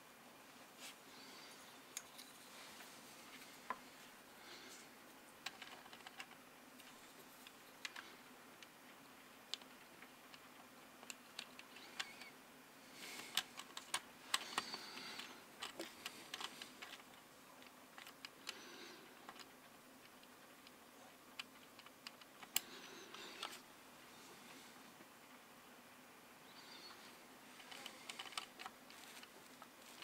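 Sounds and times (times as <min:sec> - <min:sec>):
rustling: 0:26.6 - 0:30.0.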